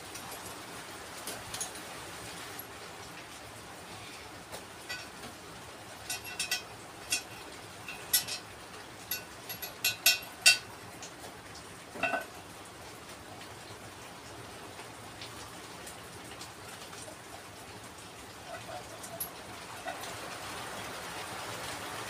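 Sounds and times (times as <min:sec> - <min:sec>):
ceramic washbasin clinks and knocks: 0:09.1 - 0:10.6, 0:12.0 - 0:12.3.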